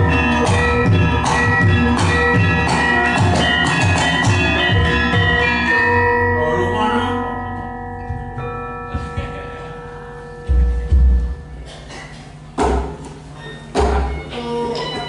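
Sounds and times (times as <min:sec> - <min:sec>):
gamelan ensemble playing: 0:00.0 - 0:15.0
gongs ringing: 0:00.0 - 0:15.0
low thumps: 0:10.5 - 0:11.7.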